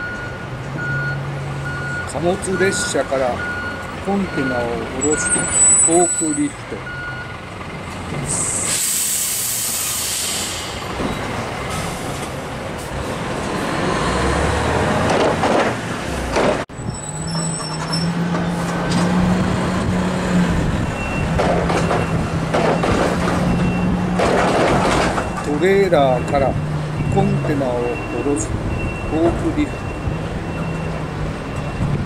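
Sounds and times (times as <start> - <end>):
diesel forklift engine droning: 0.0 - 15.1, 15.9 - 32.0
hiss of released air: 8.3 - 10.8.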